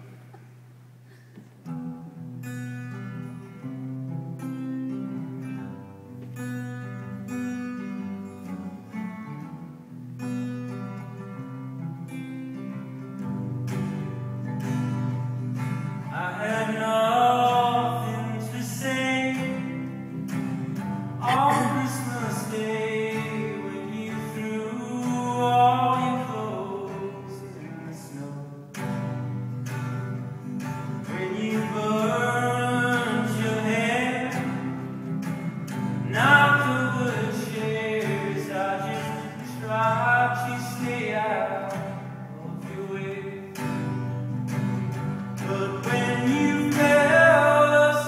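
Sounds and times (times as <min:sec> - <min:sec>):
strummed acoustic guitar: 0:00.0 - 0:48.0
man singing: 0:16.0 - 0:19.9, 0:21.2 - 0:28.6, 0:31.0 - 0:34.8, 0:36.0 - 0:43.8, 0:45.4 - 0:48.0.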